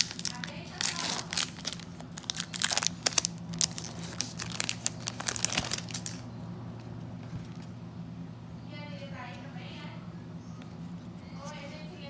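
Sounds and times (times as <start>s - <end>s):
foil wrapper crinkling: 0.0s - 6.3s.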